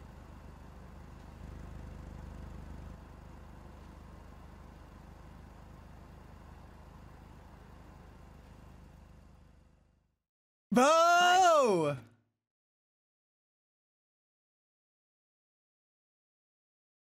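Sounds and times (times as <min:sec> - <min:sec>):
low steady rumble: 0:00.0 - 0:09.8.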